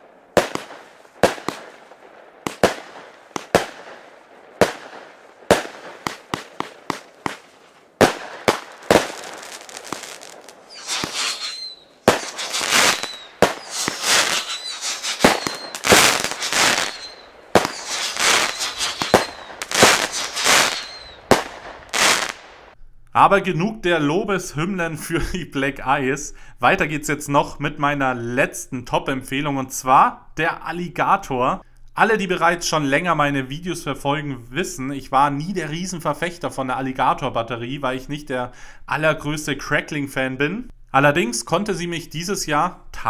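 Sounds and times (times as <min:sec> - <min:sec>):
firework shots and bursts: 0:00.0 - 0:22.8
faint falling firework whistle: 0:09.8 - 0:22.4.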